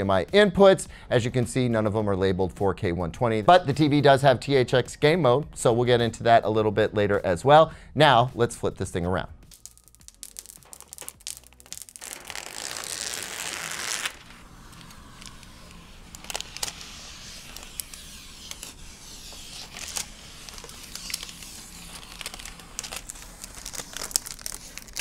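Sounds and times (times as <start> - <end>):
plastic film crinkling: 9.5 - 25.0
plastic film tearing hiss: 9.5 - 25.0.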